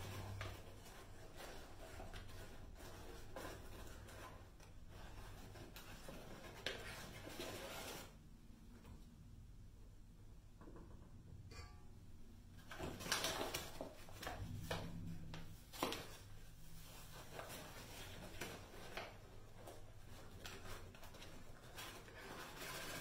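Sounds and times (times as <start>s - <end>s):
paper bag rustling and crinkling: 0.0s - 8.2s, 12.6s - 23.0s
sharp knocks and taps: 10.6s - 11.7s.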